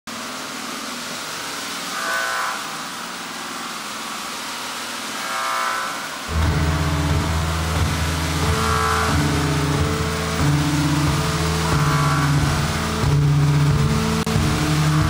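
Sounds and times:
loud low buzz: 0.1s - 15.0s
synthesizer drones: 0.1s - 15.0s
higher synth tone: 6.3s - 15.0s.

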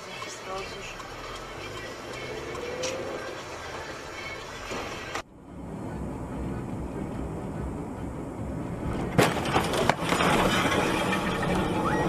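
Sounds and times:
vehicle rumbling on road: 0.0s - 12.0s
vehicle crash impact: 9.0s - 12.0s.

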